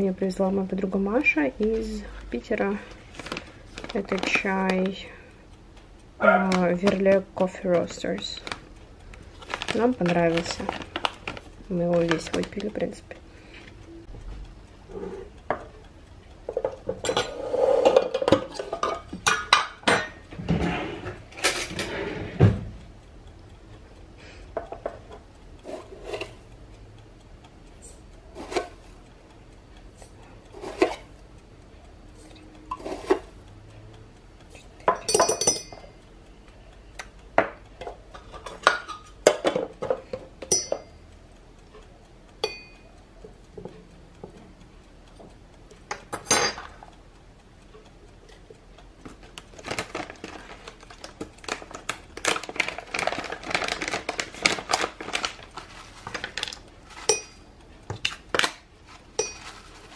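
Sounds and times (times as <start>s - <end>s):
teaspoon clinking on teapot: 34.9s - 35.8s, 40.5s - 41.0s, 57.0s - 57.4s, 59.2s - 59.6s.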